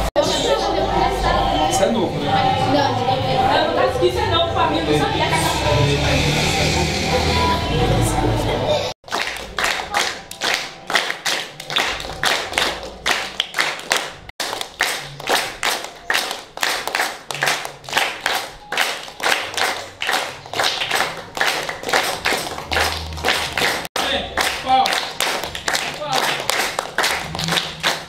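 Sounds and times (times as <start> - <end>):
group hand-clapping in a steady beat: 9.0 - 28.0.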